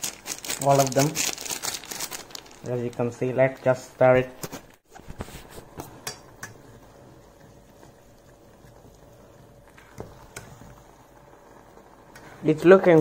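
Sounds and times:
fork stirring noodles in saucepan: 5.5 - 10.8.

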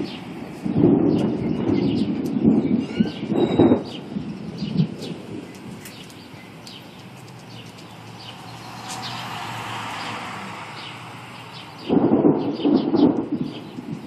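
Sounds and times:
birds chirping: 0.0 - 14.0
pickup truck driving past: 7.2 - 12.0.

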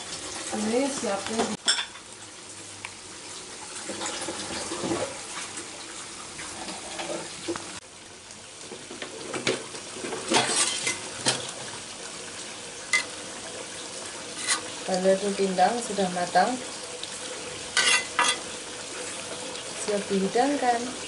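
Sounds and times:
sauce bubbling in a pan: 0.0 - 21.0.

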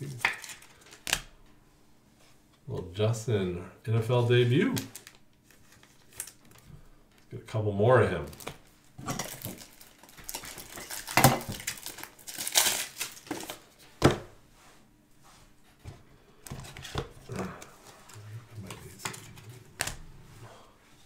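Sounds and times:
trading cards shuffling: 4.7 - 7.3, 15.8 - 20.1.

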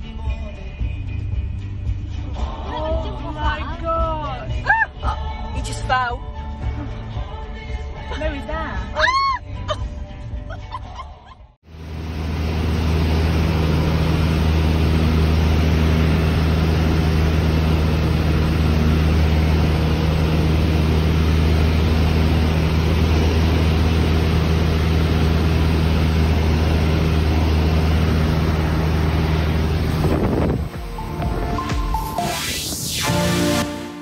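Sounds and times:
air rushing in cabin: 11.7 - 34.0
propeller plane engine: 11.7 - 34.0.

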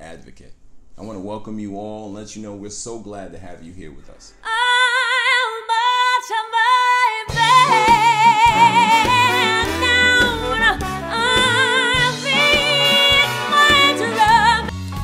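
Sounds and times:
woman singing with vibrato: 4.4 - 14.7
backing track with bass and drums: 7.3 - 15.0.

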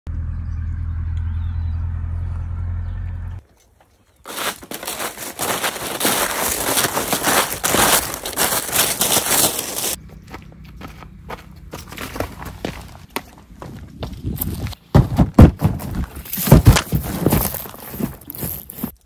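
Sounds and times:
footsteps crunching dry leaves: 3.9 - 13.0, 13.7 - 19.0.

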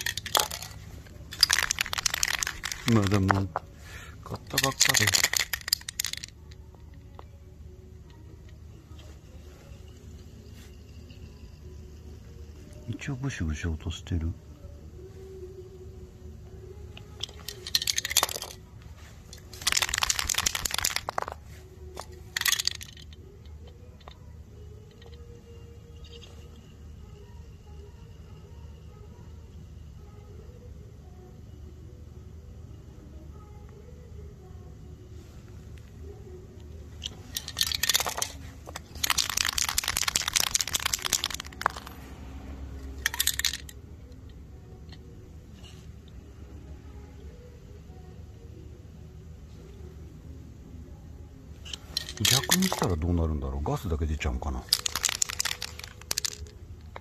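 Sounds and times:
spray paint can rattling: 0.0 - 3.5, 4.4 - 6.4, 17.2 - 18.6, 19.3 - 21.4, 22.0 - 23.1, 37.0 - 42.0, 51.7 - 53.0, 54.6 - 56.5.

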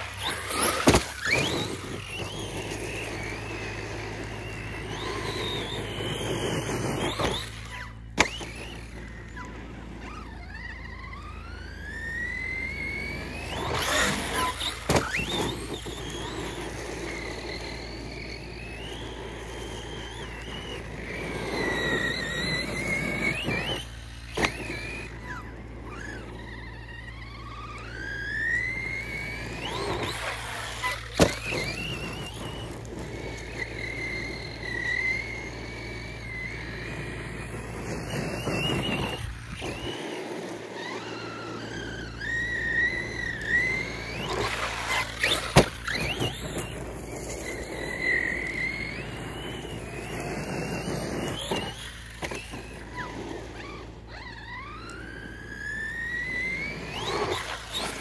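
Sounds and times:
electric motor whining: 0.0 - 58.0.

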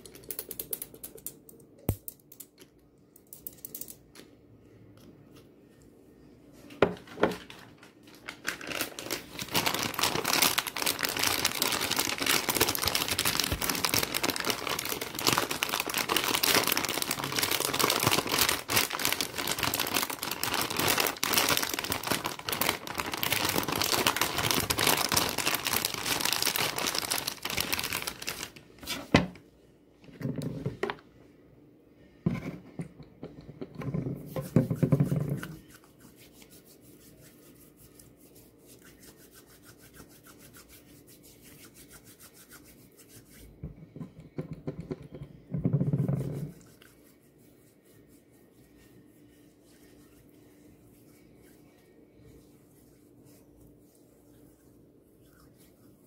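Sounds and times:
plastic packaging crinkling: 7.3 - 29.1.

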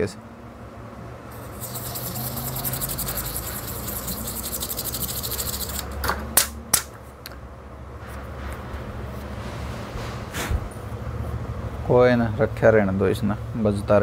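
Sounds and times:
brush scrubbing metal stencil: 1.3 - 6.0.

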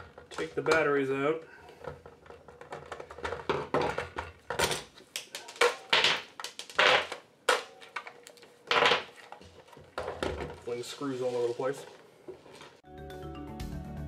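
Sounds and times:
plastic clicks and rattles: 1.7 - 10.5
batteries dropped on workbench: 1.8 - 10.6.

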